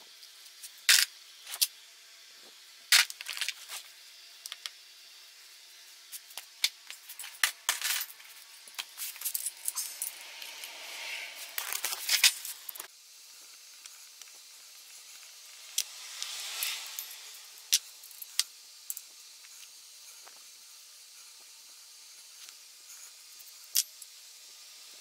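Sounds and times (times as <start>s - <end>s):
metal parts clinking and scraping: 0.6s - 1.7s, 2.9s - 3.8s, 6.3s - 10.8s, 11.4s - 12.9s, 14.9s - 19.6s.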